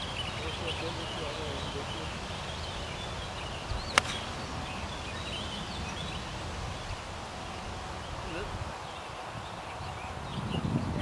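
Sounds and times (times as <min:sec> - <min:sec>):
birds chirping: 0:00.0 - 0:11.0
golf club striking ball: 0:03.8 - 0:04.5.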